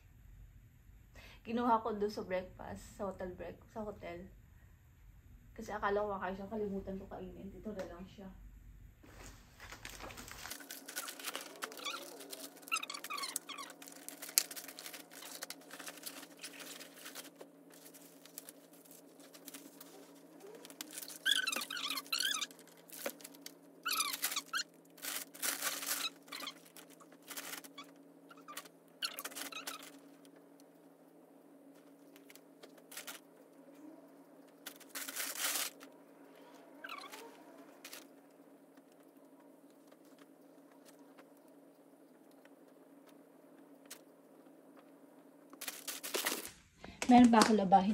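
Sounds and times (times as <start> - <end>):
steady low hum: 0.0 - 47.9
clothes and bags rustling: 9.0 - 30.0.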